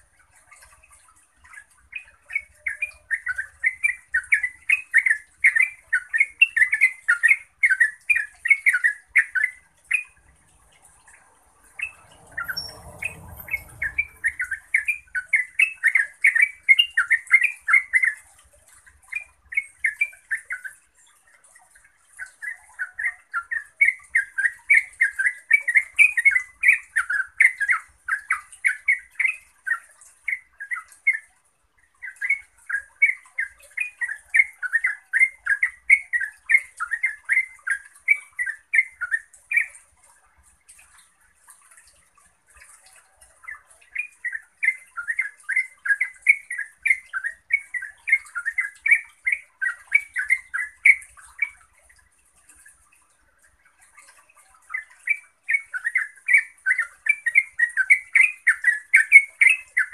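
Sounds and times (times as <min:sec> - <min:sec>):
bulbul singing rapid song: 0:01.4 - 0:18.4, 0:43.5 - 0:51.6, 0:54.6 - 0:59.9.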